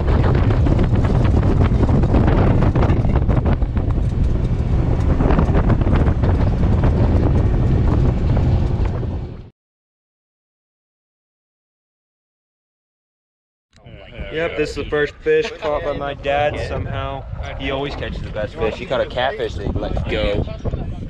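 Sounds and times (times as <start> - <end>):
heavy low boat rumble: 0.0 - 9.5, 13.8 - 21.0
wind buffeting microphone: 0.0 - 9.5, 13.8 - 21.0.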